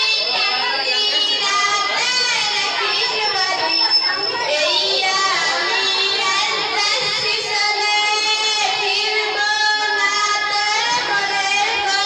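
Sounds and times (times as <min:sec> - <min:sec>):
girl singing into microphone: 0:04.5 - 0:12.0.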